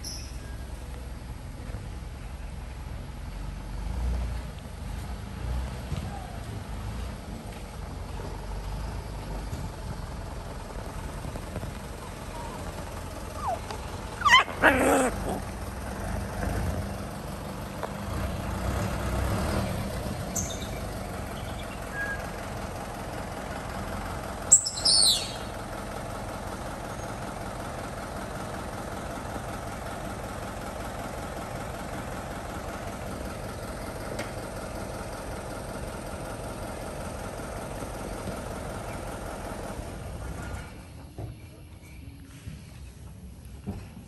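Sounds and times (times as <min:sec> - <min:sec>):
outdoor background noise: 0:00.0 - 0:44.0
high falling chirp: 0:24.5 - 0:25.5.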